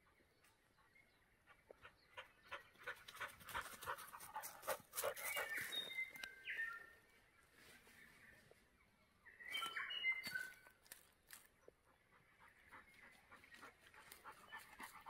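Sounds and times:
dog panting: 1.6s - 5.6s, 11.9s - 15.0s
whistled bird notes: 5.2s - 7.0s, 9.3s - 10.7s.

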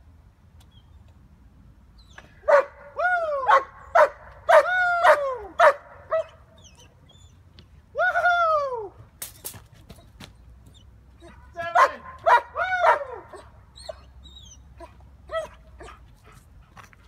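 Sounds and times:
dog barking and yelping: 2.4s - 7.3s, 11.2s - 16.1s.

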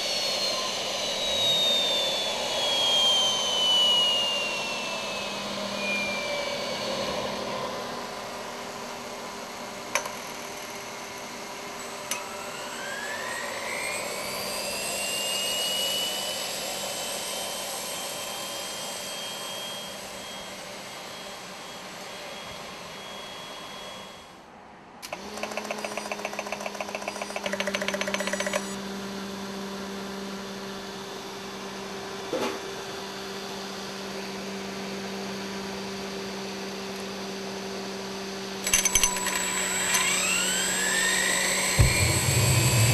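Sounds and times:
jet engine whining: 0.0s - 25.4s, 30.6s - 42.9s
fast even buzzing: 39.6s - 42.9s
steady low hum: 41.6s - 42.9s.

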